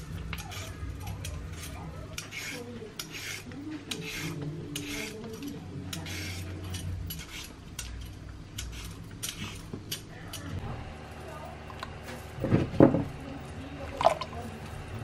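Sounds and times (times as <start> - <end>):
peeler scraping a carrot: 0.0 - 10.5.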